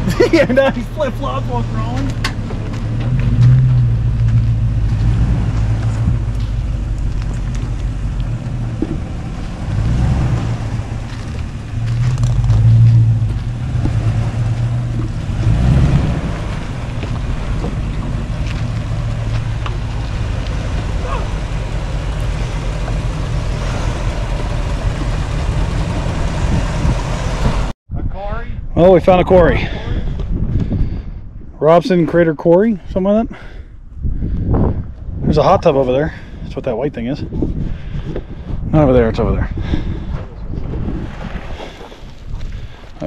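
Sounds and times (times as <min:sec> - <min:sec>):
truck engine running low: 0:00.0 - 0:27.8.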